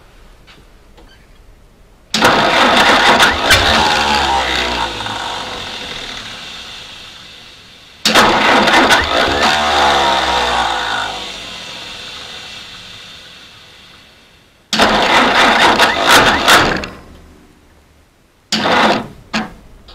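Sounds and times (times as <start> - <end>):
starter cranking engine: 2.1 - 17.0, 18.6 - 19.1.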